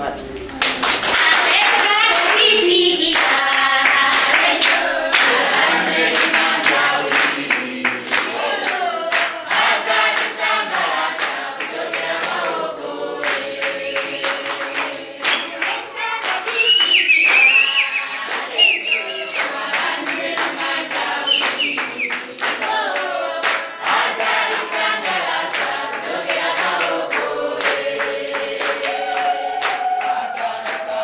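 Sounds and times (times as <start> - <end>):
women singing together: 0.9 - 31.0
hands clapping in time: 3.2 - 9.4, 13.2 - 31.0.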